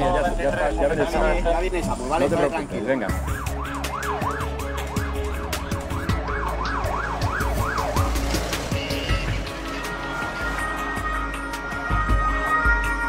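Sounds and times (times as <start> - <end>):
ambulance siren yelping: 3.1 - 13.0
low rumble of vehicle engines: 4.5 - 12.1.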